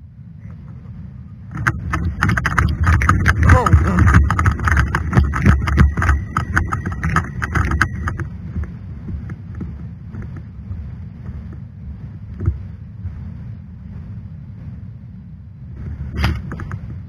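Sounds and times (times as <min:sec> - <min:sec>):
low wind rumble: 0:00.0 - 0:17.0
rifle and gear clattering: 0:01.5 - 0:08.7.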